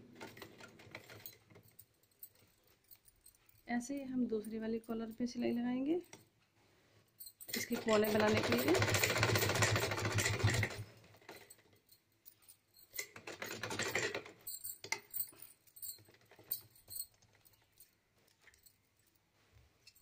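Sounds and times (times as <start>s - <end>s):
sewing machine stitching: 0.0s - 1.6s, 7.5s - 11.5s, 13.0s - 14.4s.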